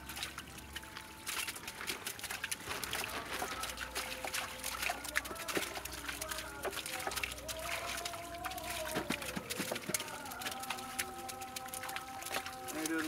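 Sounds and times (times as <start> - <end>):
shallow water splashing: 0.0 - 13.0.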